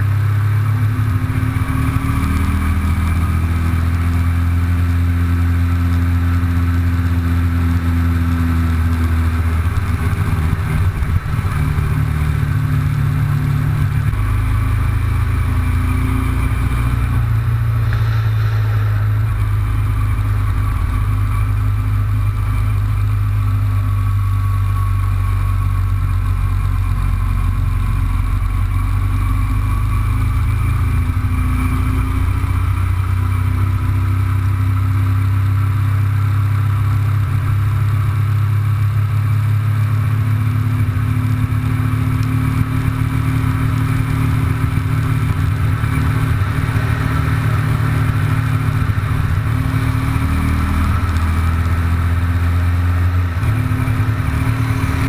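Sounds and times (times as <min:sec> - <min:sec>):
motorcycle engine running: 0:00.0 - 0:55.0
rush of wind noise: 0:16.5 - 0:22.3.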